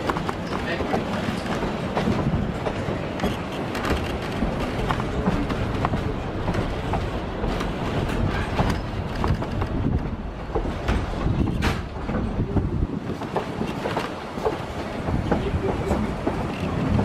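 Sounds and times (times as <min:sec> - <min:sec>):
train rumbling with wheel clacks: 0:00.0 - 0:17.0.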